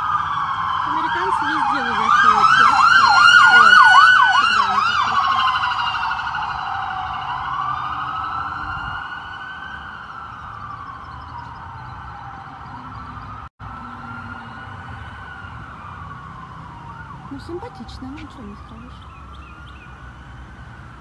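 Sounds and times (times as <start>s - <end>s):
emergency vehicle siren: 0.0s - 21.0s.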